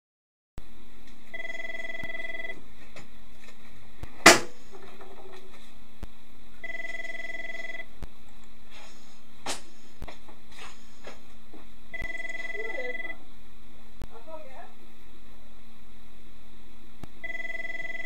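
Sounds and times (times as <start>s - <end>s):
steady hum: 0.6s - 18.0s
telephone ringing: 1.3s - 2.6s, 6.6s - 7.9s, 11.9s - 13.2s, 17.2s - 18.0s
sharp knock: 4.2s - 4.6s.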